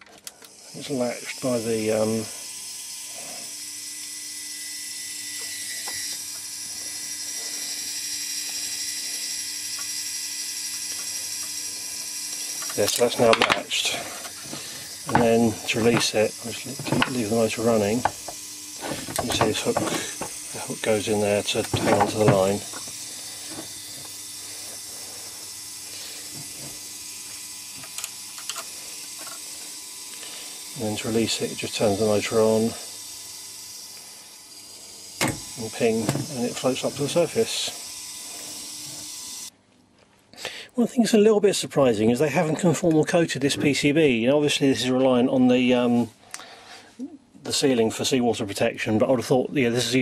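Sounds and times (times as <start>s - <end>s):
small motor whining: 0.0s - 39.6s.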